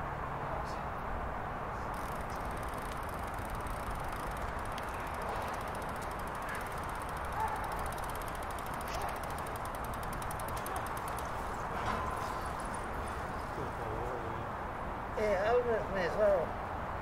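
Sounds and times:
faint fast high ticking: 1.9s - 11.5s
distant background hiss: 2.0s - 11.5s.

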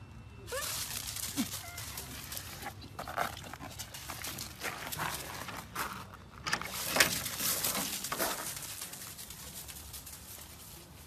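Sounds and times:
footsteps crunching on gravel: 0.6s - 6.4s.

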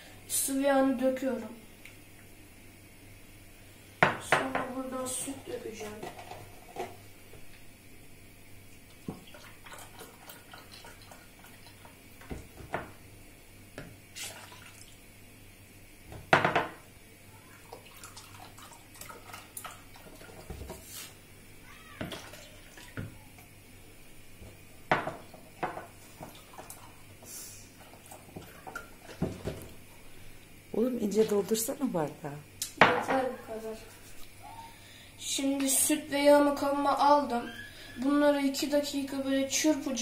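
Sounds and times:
milk pouring into glass: 17.5s - 20.4s, 22.0s - 23.2s.

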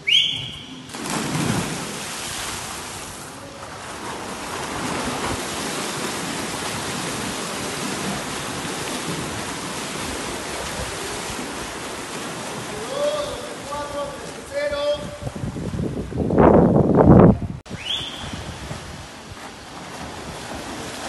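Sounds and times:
swimmers splashing water: 0.0s - 15.4s, 17.7s - 21.0s.

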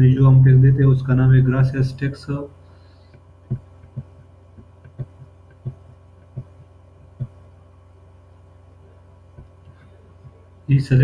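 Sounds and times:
low electrical hum: 0.0s - 11.0s
dull low thumps: 3.2s - 7.9s.

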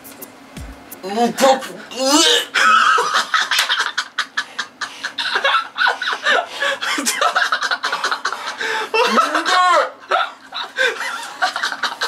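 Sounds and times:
person crying out: 1.4s - 3.0s, 9.0s - 10.4s
people stifling laughter: 2.5s - 12.0s.

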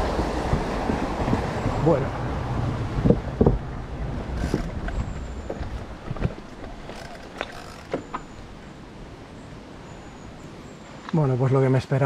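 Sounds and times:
wind rushing over microphone: 0.0s - 9.6s
bike clicks and knocks: 4.3s - 8.6s.

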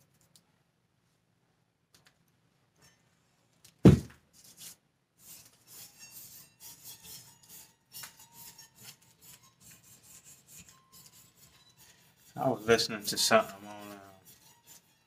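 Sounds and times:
loud thump: 3.8s - 4.2s
soap scraping on cutter: 4.4s - 15.0s.

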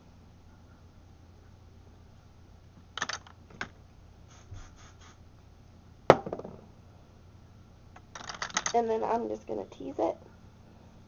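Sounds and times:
sharp knock: 6.1s - 6.6s.

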